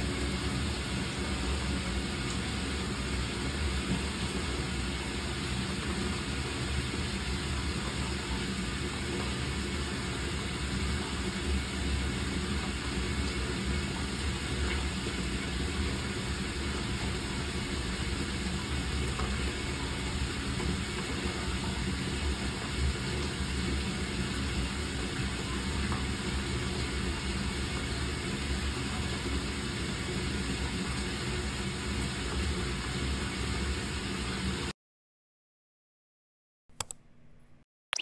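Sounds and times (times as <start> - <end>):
dishwasher motor hum: 0.0 - 34.7
water spraying inside dishwasher: 0.0 - 34.7.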